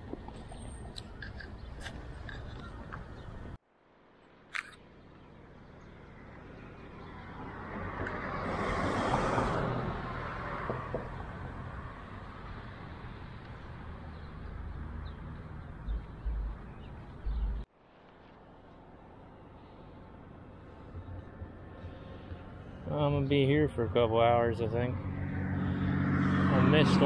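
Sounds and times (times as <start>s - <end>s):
car passing by: 6.9s - 15.6s, 20.9s - 27.0s.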